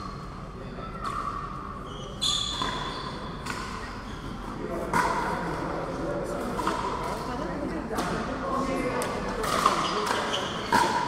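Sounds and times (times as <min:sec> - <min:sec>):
ball bouncing on court: 0:09.0 - 0:11.0.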